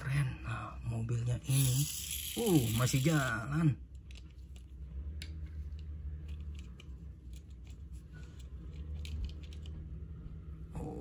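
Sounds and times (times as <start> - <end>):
low steady rumble: 0.0 - 11.0
plastic toy parts clicking: 1.5 - 3.3.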